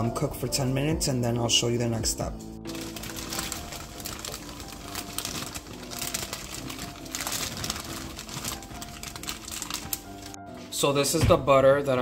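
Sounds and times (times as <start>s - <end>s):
plastic bag rustling: 2.7s - 10.4s.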